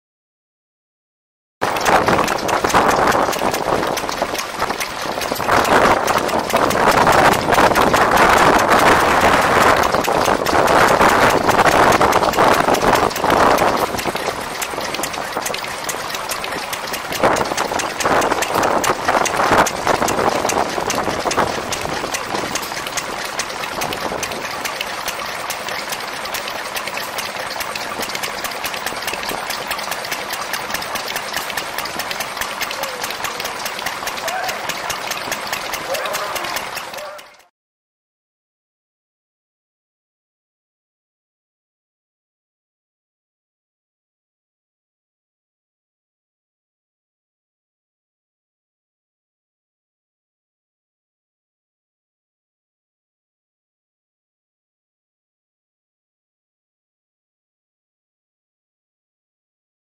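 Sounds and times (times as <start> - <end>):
stationary engine running: 1.6 - 37.5.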